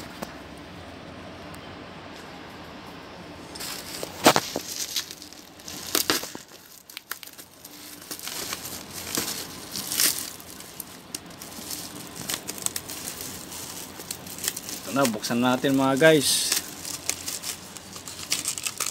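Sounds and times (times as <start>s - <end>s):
bubble wrap crinkling: 3.5s - 18.9s
scissors cutting plastic: 3.9s - 18.9s.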